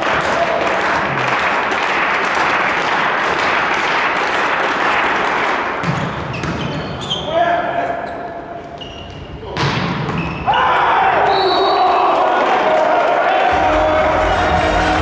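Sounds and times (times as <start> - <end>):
crowd applauding: 0.0 - 5.8, 11.5 - 15.0.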